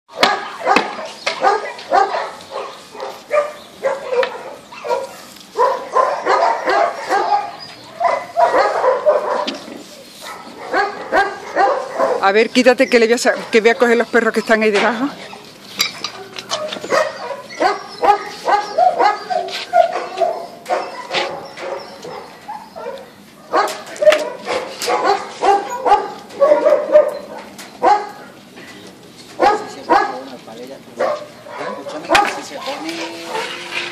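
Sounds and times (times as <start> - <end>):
dogs barking: 0.1 - 14.5, 15.1 - 28.4, 29.4 - 33.9
dog drawn-out call: 15.2 - 28.2.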